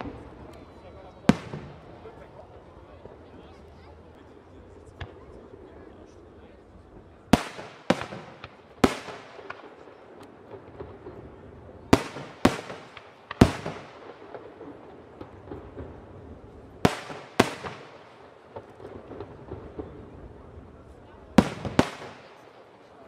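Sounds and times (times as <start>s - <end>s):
small firework pops and crackle: 0.0s - 2.3s, 2.9s - 6.2s, 7.0s - 23.0s
firework shells bursting: 16.8s - 20.0s.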